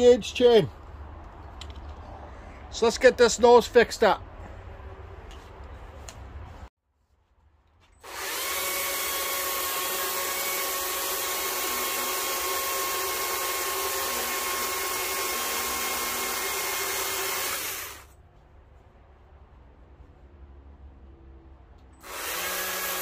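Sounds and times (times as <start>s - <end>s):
chainsaw cutting wood: 8.0s - 18.1s, 22.0s - 23.0s.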